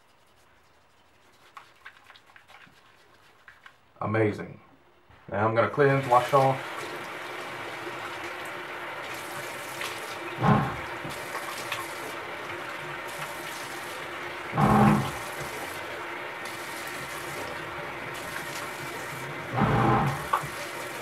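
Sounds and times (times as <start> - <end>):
water running from sink tap: 5.9 - 21.0.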